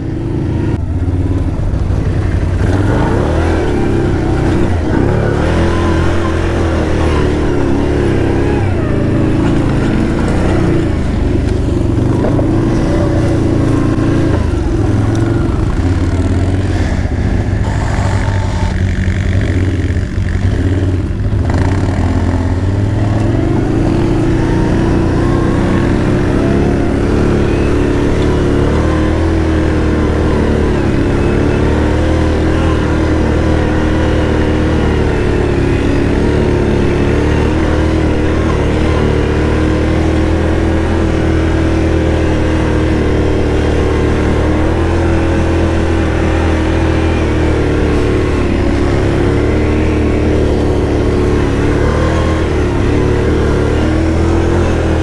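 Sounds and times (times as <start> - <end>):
atv engine pulling hard: 0.0 - 55.0.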